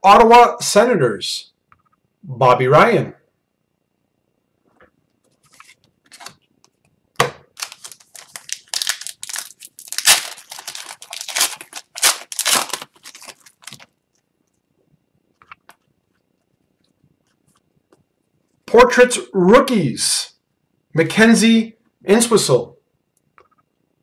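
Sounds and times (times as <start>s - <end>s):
wrapper tearing and crinkling: 5.5s - 6.4s, 7.5s - 14.0s
wrapper snapping: 7.5s - 14.0s.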